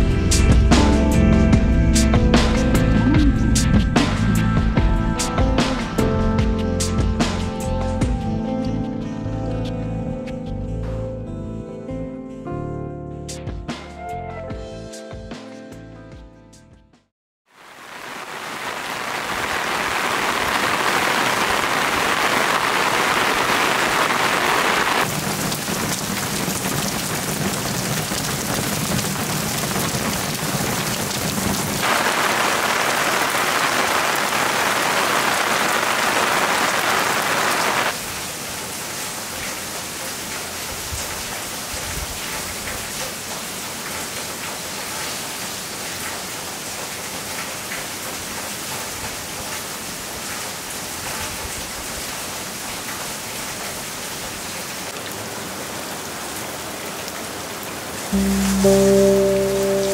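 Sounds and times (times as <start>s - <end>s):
heavy rain pouring: 17.5s - 59.9s.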